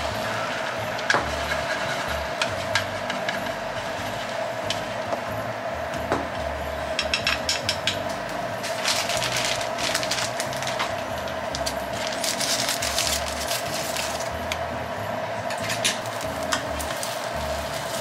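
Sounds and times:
steady hum: 0.0s - 18.0s
utensils scraping a pan: 0.2s - 3.4s.

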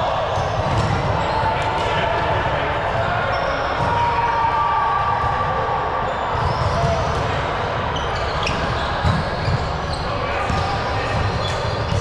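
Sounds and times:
players' voices echoing: 0.0s - 12.0s
ball bouncing on gym floor: 0.6s - 1.2s.

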